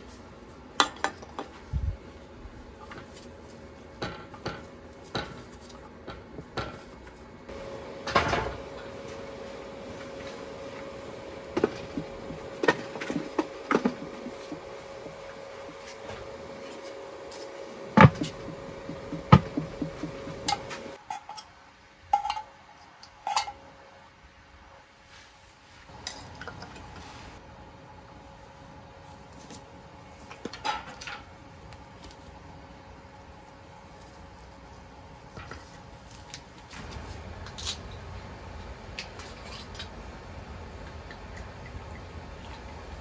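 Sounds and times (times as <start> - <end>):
faint steady hum: 0.0 - 43.0
wooden steamer boxes clunking: 18.0 - 21.0.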